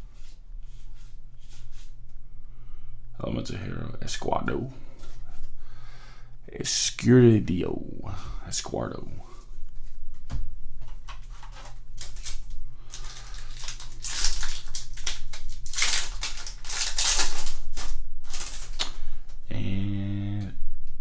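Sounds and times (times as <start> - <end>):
low buzzing hum: 0.0 - 21.0
foil wrapper crinkling and tearing: 11.0 - 19.1.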